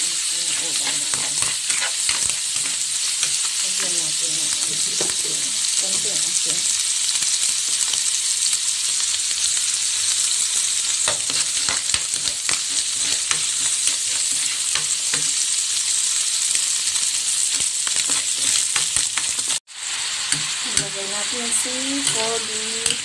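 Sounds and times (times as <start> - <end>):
onion sizzling in a frying pan: 0.0 - 23.0
metal spoon scraping a pan: 0.2 - 5.2, 11.0 - 15.4, 17.0 - 19.6, 20.2 - 23.0.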